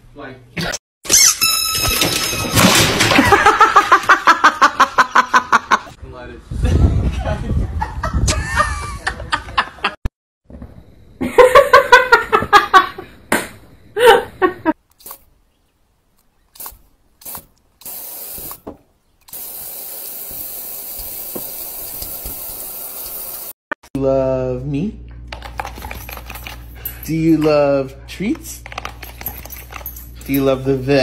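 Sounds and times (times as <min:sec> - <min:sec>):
water spraying on window glass: 0:19.3 - 0:23.5.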